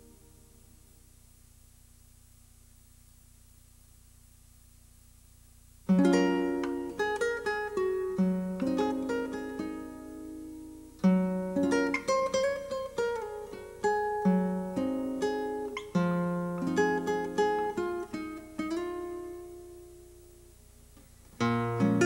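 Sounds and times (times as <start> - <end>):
plucked string music: 5.9 - 19.9, 21.0 - 22.0.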